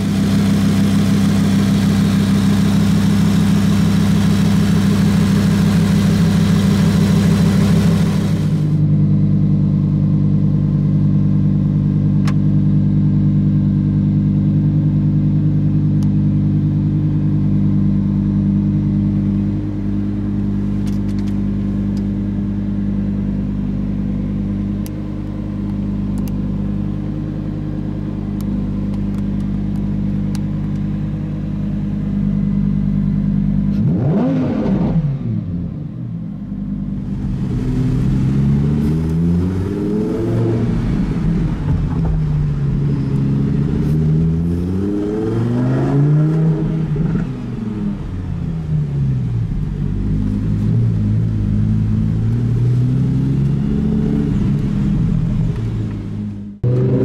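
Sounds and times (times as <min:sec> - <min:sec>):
car engine idling and revving: 0:00.0 - 0:57.0.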